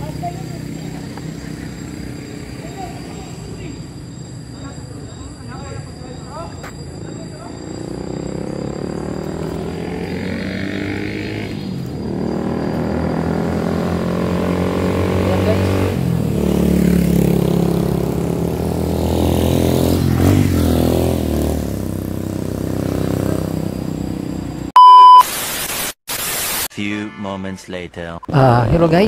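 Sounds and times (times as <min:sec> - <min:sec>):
loud electronic beep: 0:00.0 - 0:16.4, 0:22.6 - 0:27.5
motorcycles passing by: 0:00.0 - 0:24.7.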